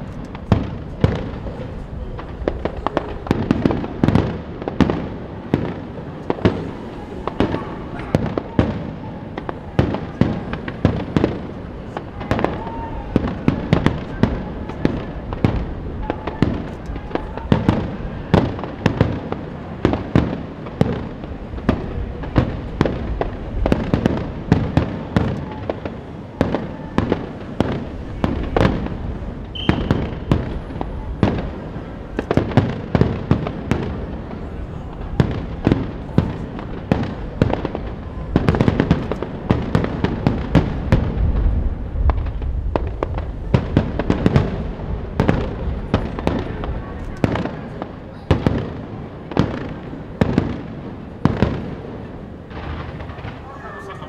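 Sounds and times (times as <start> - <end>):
fireworks crackle: 0.0 - 54.0.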